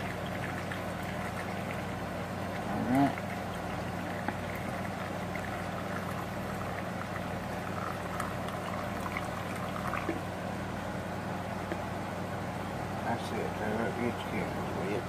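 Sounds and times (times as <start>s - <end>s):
water pouring into a plastic bowl: 0.0s - 10.3s.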